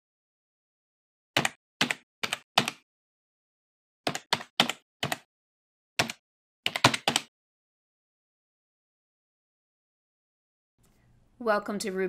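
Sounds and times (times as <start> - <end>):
computer keyboard keystrokes: 1.4 - 2.8, 4.1 - 5.3, 6.0 - 7.3.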